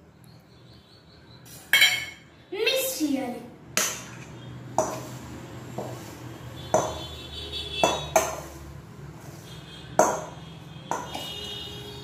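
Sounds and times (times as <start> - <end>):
metal spoon clinking on bowl: 1.7 - 2.2.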